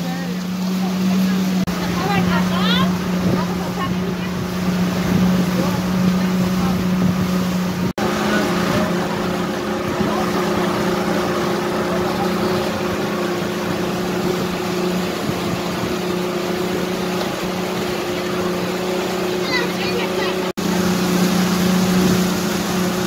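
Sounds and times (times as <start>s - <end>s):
motorboat engine humming: 0.0s - 23.0s
water rushing along hull: 0.0s - 23.0s.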